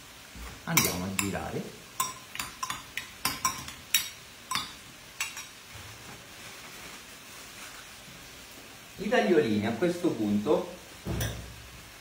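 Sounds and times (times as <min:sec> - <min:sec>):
metal spoon clinking on glass: 0:00.8 - 0:01.4, 0:02.0 - 0:05.5.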